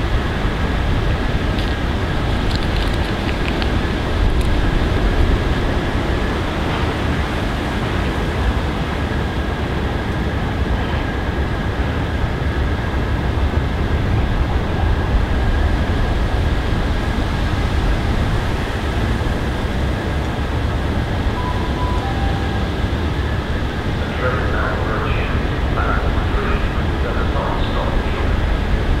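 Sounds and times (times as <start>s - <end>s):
train rumble: 0.0s - 29.0s
faint high whine: 20.3s - 29.0s
faint two-note tone: 21.3s - 23.3s.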